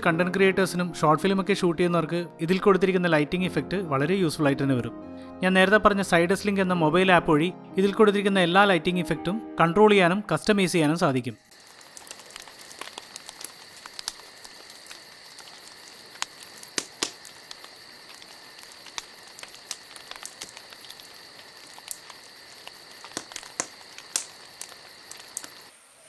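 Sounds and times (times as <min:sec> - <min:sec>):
sharp pops and snaps: 0:11.5 - 0:25.7.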